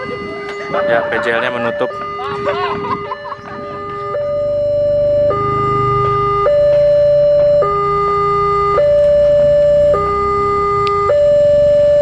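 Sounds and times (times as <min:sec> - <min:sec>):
level crossing two-tone alarm: 0:00.0 - 0:12.0.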